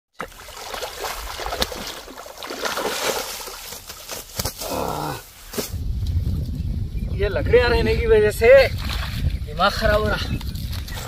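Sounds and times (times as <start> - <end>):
water splashing and sloshing: 0.1 - 4.7, 8.6 - 11.0.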